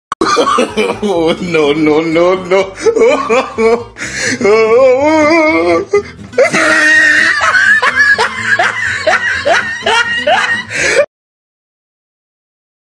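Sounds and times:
person giggling: 0:00.2 - 0:01.6, 0:02.5 - 0:11.1.

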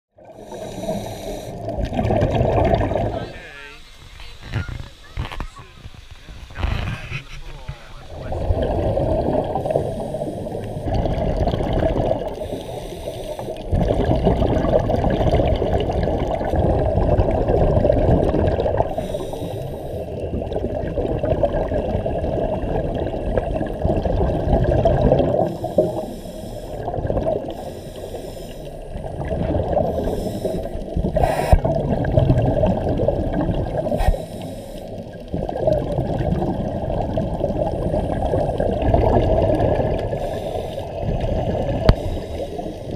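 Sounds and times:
bubbles rushing underwater: 0:00.2 - 0:03.4, 0:06.3 - 0:27.8, 0:28.7 - 0:42.9
divers breathing through regulators: 0:00.4 - 0:01.8, 0:09.5 - 0:10.9, 0:12.4 - 0:13.7, 0:18.9 - 0:20.2, 0:25.4 - 0:26.9, 0:27.5 - 0:29.0, 0:29.8 - 0:31.7, 0:33.8 - 0:35.0, 0:40.1 - 0:41.0, 0:41.6 - 0:42.9.

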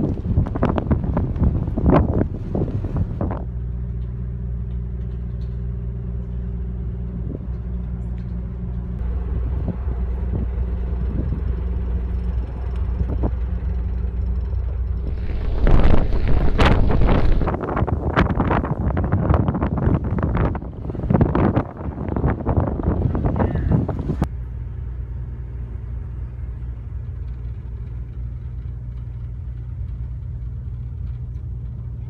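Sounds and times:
wind buffeting microphone: 0:00.0 - 0:03.6, 0:06.9 - 0:24.3
ferry machinery drone: 0:00.0 - 0:32.0.

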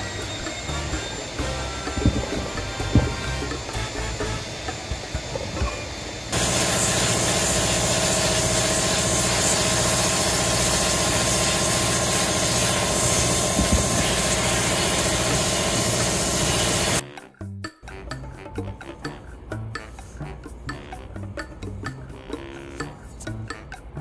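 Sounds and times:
sandblast gun hissing: 0:00.0 - 0:17.0
steady hum: 0:00.0 - 0:17.0.

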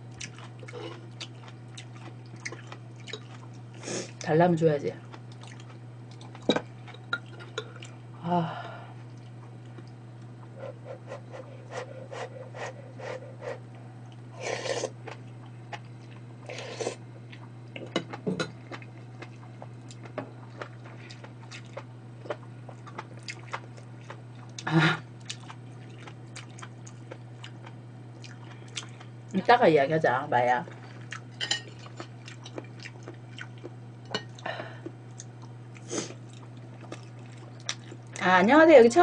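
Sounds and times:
low electrical hum: 0:00.0 - 0:39.0
person chewing: 0:00.1 - 0:04.2, 0:05.3 - 0:07.9, 0:09.1 - 0:29.1, 0:30.7 - 0:38.2
slurping soup: 0:14.4 - 0:15.0.

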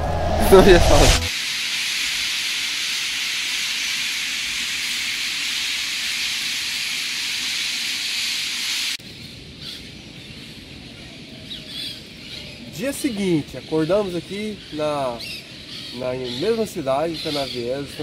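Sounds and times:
flock of birds calling: 0:09.6 - 0:18.0
scattered bird chirps: 0:11.4 - 0:18.0.

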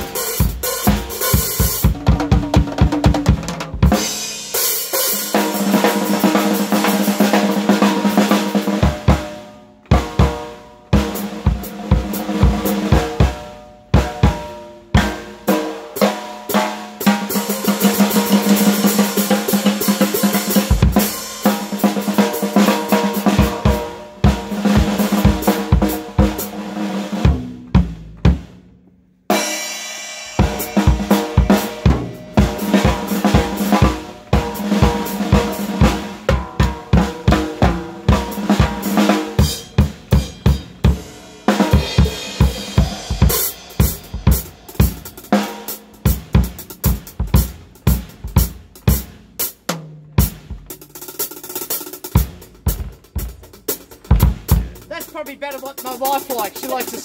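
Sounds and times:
kick drum: 0:27.3 - 0:28.6, 0:50.2 - 0:50.8, 0:52.2 - 0:54.9
tom and cymbal hits: 0:29.3 - 0:57.0.

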